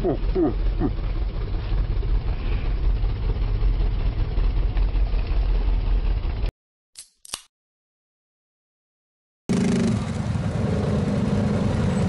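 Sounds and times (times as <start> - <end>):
atv engine idling: 0.0 - 6.5
short clicks: 7.0 - 7.5.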